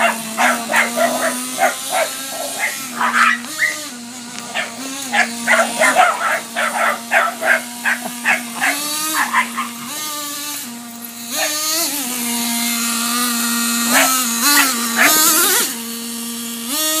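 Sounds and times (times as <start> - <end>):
dogs barking: 0.0 - 10.2, 11.3 - 11.9, 13.8 - 15.7
toy truck motor whining: 0.0 - 17.0.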